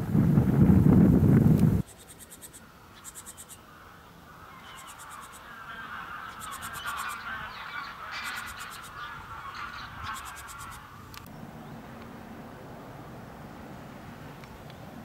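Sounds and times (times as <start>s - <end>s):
geese honking: 3.0s - 11.3s.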